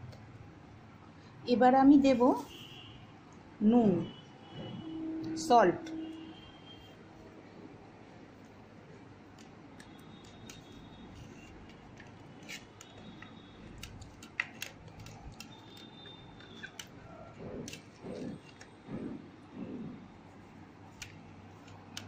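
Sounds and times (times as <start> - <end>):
small clicks and taps: 9.3 - 17.0.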